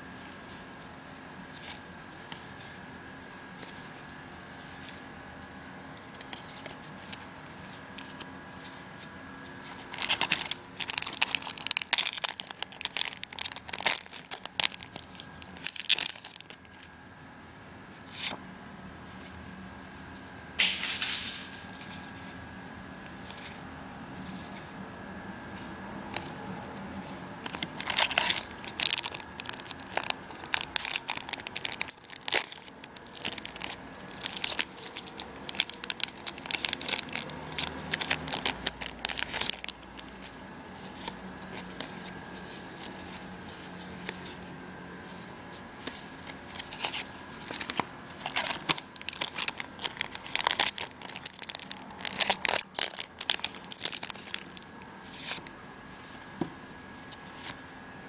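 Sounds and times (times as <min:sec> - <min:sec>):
foil wrappers crinkling and tearing: 0:09.6 - 0:17.0, 0:27.4 - 0:44.5, 0:45.8 - 0:56.3.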